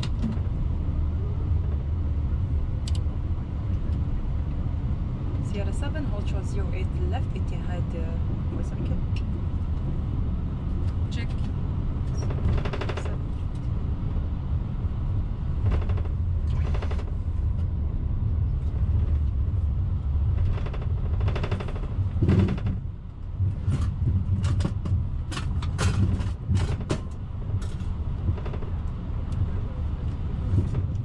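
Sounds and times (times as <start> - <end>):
airliner taxiing rumble: 0.0 - 31.0
crackly noise bursts: 20.3 - 22.8.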